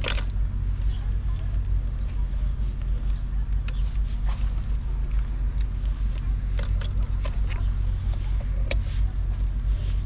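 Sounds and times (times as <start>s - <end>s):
clicks and knocks of gear: 0.0s - 1.0s, 3.5s - 9.0s
steady low rumble: 0.0s - 10.0s.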